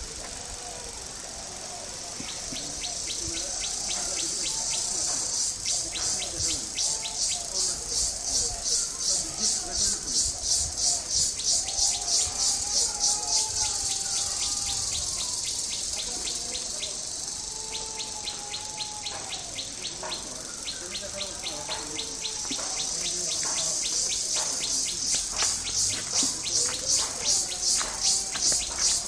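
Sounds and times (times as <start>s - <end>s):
insects calling in pulsing rhythm: 0.0s - 29.0s.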